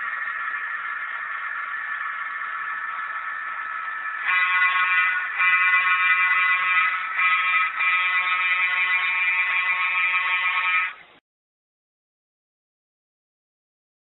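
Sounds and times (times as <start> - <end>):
model locomotive horn blasts: 4.2 - 11.0.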